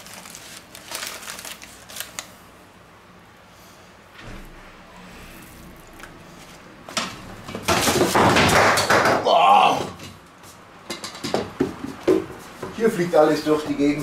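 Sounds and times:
paper crinkling and rustling: 0.0s - 2.4s.

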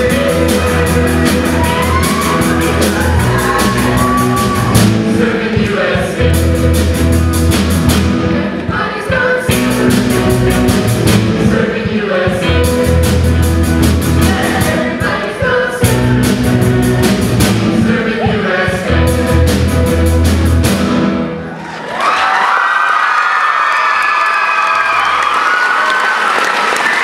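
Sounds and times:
rock band playing with singing: 0.0s - 21.6s.

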